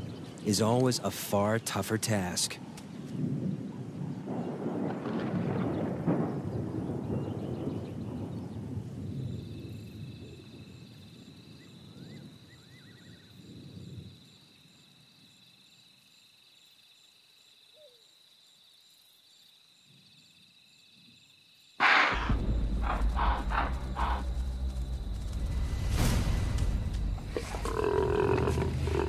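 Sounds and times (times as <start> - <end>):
insects trilling: 0.0 - 29.0
low rumble: 22.1 - 29.0.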